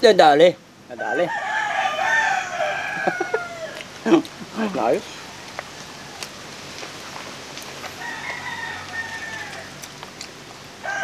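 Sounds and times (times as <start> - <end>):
rooster crowing: 0.9 - 3.9, 4.8 - 6.5, 7.9 - 9.8, 10.8 - 11.0.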